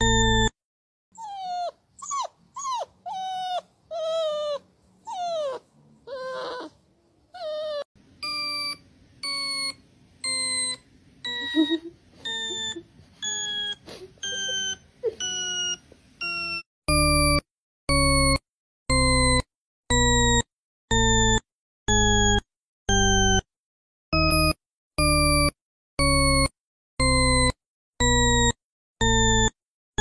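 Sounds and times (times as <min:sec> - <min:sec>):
dog whining: 0:00.0 - 0:00.5, 0:01.2 - 0:09.7, 0:10.3 - 0:17.4
short electronic beeps: 0:08.2 - 0:18.4.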